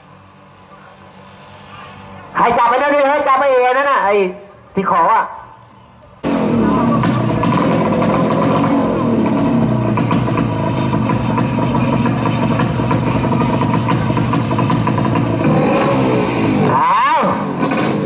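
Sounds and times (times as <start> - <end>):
speedboat engines revving: 6.2 - 18.0.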